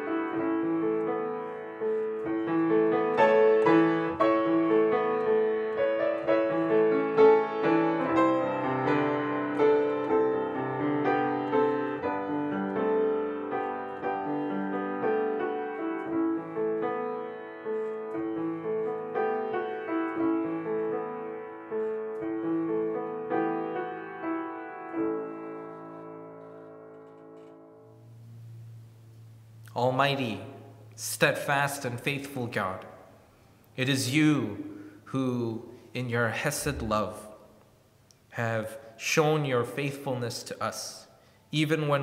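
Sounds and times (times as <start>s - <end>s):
slow solo piano piece: 0.0s - 28.7s.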